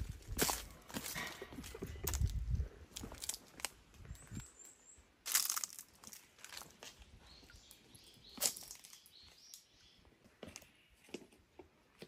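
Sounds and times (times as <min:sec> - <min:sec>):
footsteps crunching on leaves: 0:00.0 - 0:02.3, 0:05.2 - 0:07.1, 0:08.3 - 0:09.1
faint bird chirps: 0:07.0 - 0:11.1.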